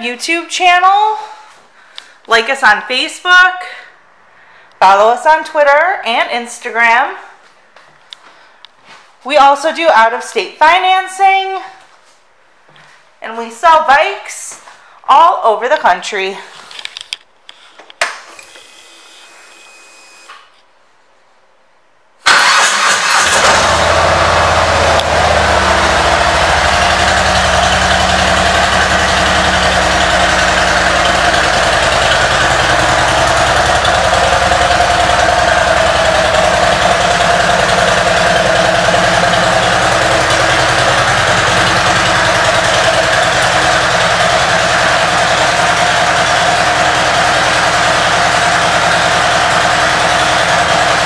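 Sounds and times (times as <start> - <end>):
motorcycle engine starting and idling: 22.2 - 51.0.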